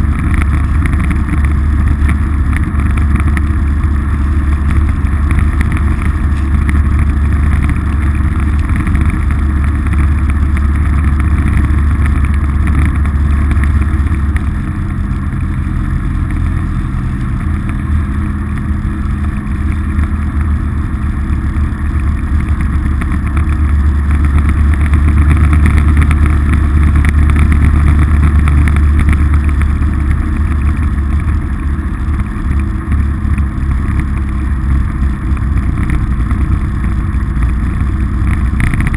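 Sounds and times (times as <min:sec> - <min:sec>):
vehicle engine droning: 0:00.0 - 0:38.9.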